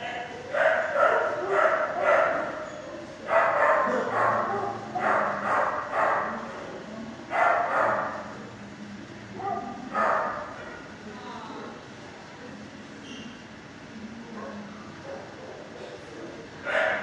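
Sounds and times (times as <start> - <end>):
dogs barking: 0.0 - 6.6, 7.2 - 8.4, 9.3 - 10.9, 14.3 - 17.0.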